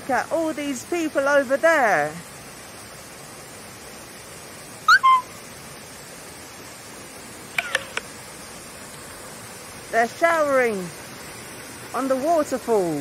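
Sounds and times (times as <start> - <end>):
waterfall rushing: 2.3 - 13.0
sharp chirps: 4.9 - 5.4
whistled bird call: 4.9 - 5.4.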